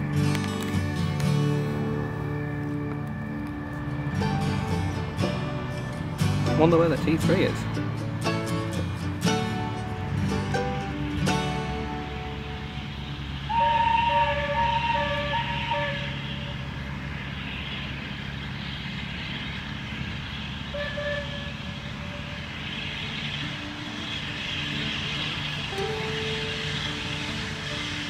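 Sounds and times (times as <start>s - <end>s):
steam locomotive whistle blasts: 12.3s - 17.0s, 20.7s - 28.0s.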